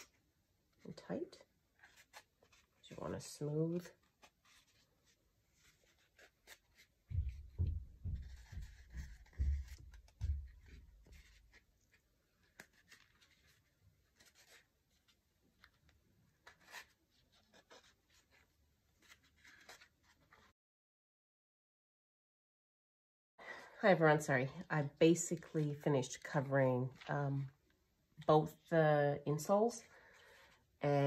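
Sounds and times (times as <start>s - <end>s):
low dull thumps: 7.1s - 10.7s.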